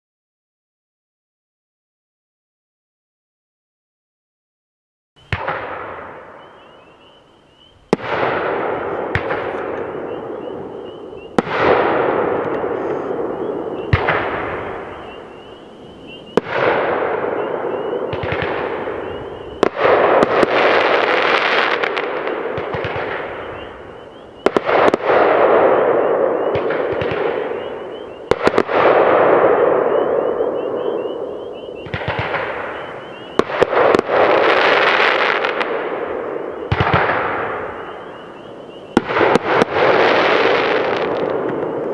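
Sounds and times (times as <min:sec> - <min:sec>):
crackling firework stars: 0:05.2 - 0:41.9
firework shells firing: 0:07.9 - 0:15.4, 0:16.3 - 0:37.8, 0:39.0 - 0:41.9.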